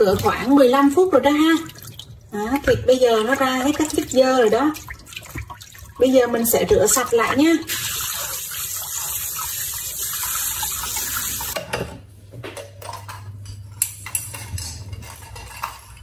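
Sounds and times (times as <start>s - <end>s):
meat and dishes clattering: 11.4s - 16.0s.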